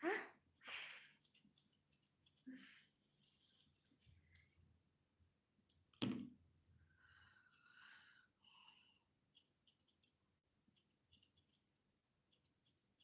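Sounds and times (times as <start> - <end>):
scissors snipping fur: 0.6 - 2.9, 8.7 - 13.0.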